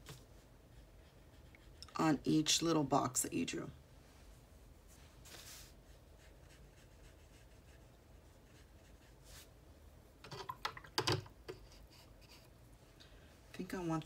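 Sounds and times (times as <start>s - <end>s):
brush strokes on paper: 4.0s - 9.6s.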